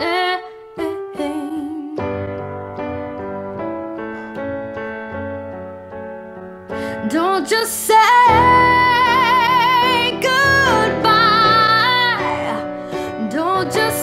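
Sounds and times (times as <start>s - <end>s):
woman singing with vibrato: 0.0s - 2.2s, 7.0s - 14.0s
soft instrumental backing: 0.0s - 14.0s.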